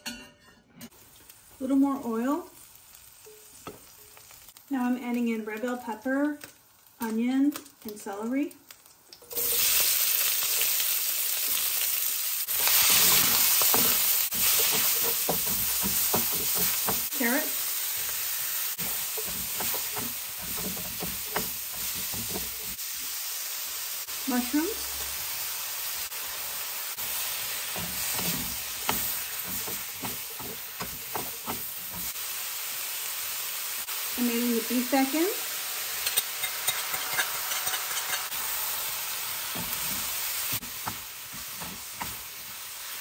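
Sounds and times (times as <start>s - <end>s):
vegetables sizzling in oil: 0.9s - 43.0s
spatulas scraping a wok: 12.5s - 22.8s, 27.0s - 32.2s, 35.9s - 42.5s.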